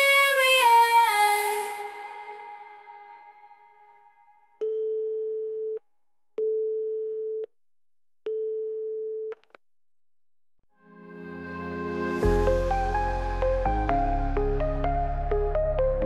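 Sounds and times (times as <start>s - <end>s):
music: 10.8s - 16.0s.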